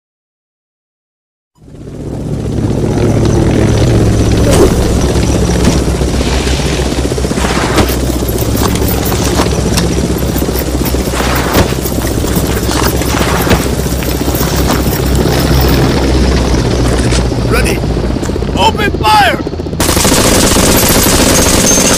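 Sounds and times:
helicopter rotor thrum: 1.6 - 21.9
gunshots and bangs: 10.2 - 15.5, 19.8 - 21.9.

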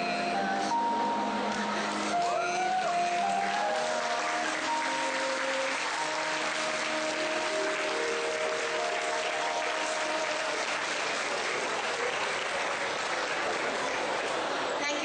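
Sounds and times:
music of slow held notes: 0.0 - 11.4
audience applauding: 1.4 - 15.0.

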